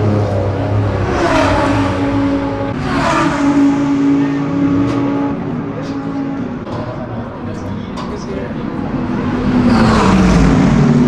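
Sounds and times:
race cars passing by: 0.0 - 11.0.

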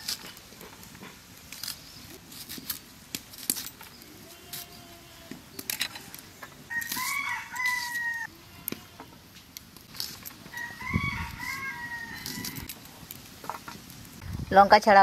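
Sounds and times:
rooster crowing: 6.7 - 8.5, 10.5 - 12.7.

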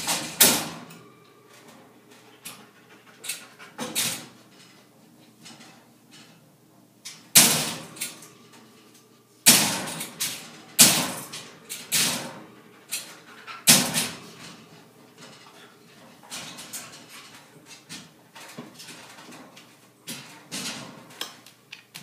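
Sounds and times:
metal crate panel banging: 7.3 - 8.4, 9.4 - 15.4.

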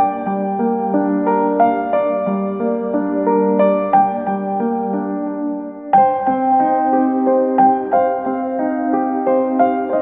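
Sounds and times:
gentle keyboard melody: 0.0 - 10.0.

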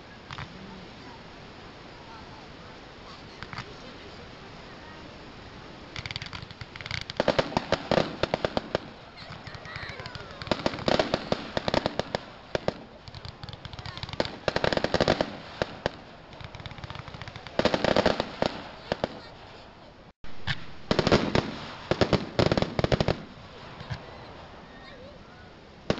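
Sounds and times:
fireworks crackling pops: 0.0 - 1.1, 3.0 - 4.8, 5.8 - 25.2.

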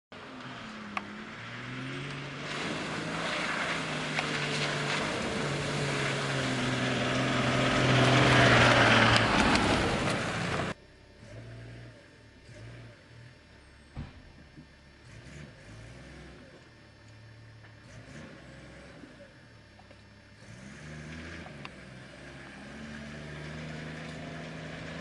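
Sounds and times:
tyre and ground noise: 0.1 - 10.8
vehicle engine running: 0.1 - 25.0
faint engine hum: 0.2 - 25.0.

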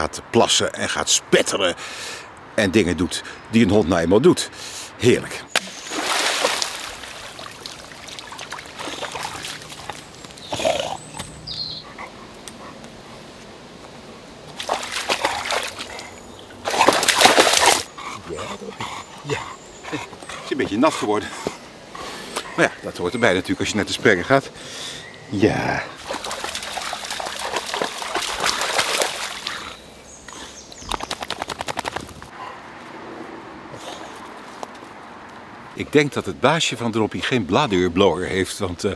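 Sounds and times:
dog splashing in water: 5.6 - 10.6, 14.6 - 17.9, 26.0 - 29.6
water trickling in a brook: 5.6 - 11.2, 25.6 - 29.8
dog shaking itself off: 16.7 - 17.8.

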